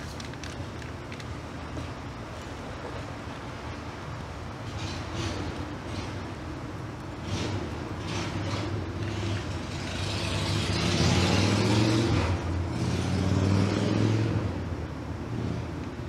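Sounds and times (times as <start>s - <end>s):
vehicle driving past: 7.3s - 14.6s.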